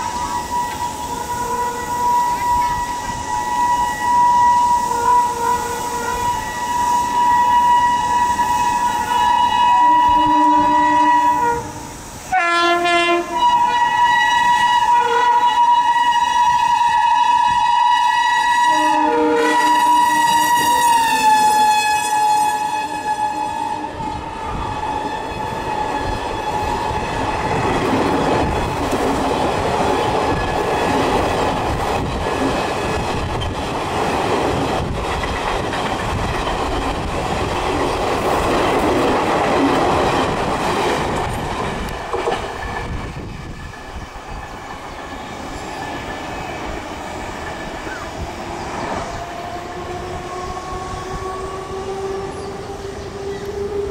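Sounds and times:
locomotive horn: 0:00.0 - 0:27.4, 0:49.1 - 0:53.9
train wheels rushing on rails: 0:00.0 - 0:53.9
wheels clacking over rail joints: 0:25.7 - 0:48.0.

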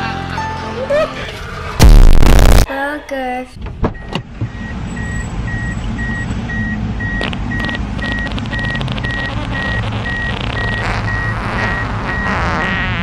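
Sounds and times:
car warning chime beeping: 0:04.0 - 0:12.4.

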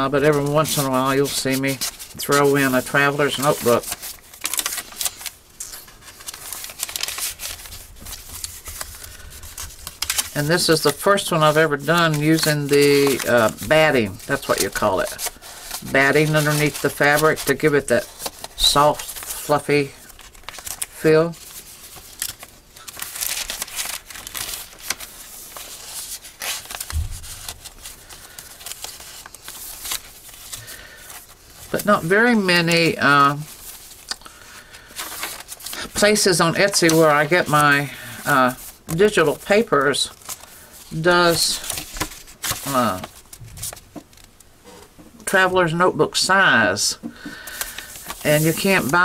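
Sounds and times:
paper pages rustling: 0:00.0 - 0:45.0, 0:47.0 - 0:49.0
low thump: 0:26.9 - 0:27.6.

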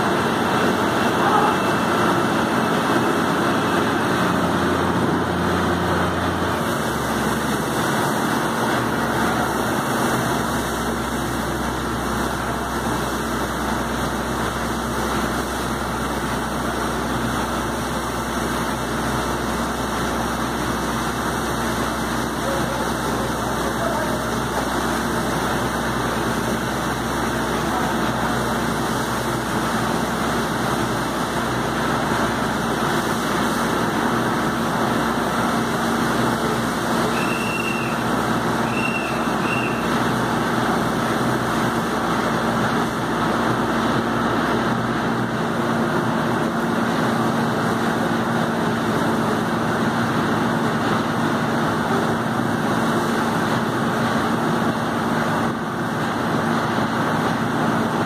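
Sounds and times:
water hose rushing: 0:00.0 - 0:58.0
short high chirps: 0:37.1 - 0:38.0, 0:38.7 - 0:39.9.

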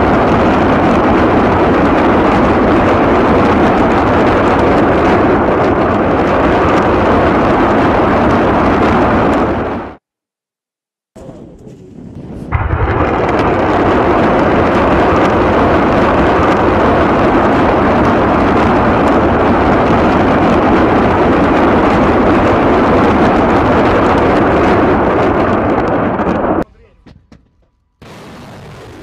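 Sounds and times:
rockets launching with sharp cracks: 0:11.6 - 0:26.7, 0:28.0 - 0:29.0.

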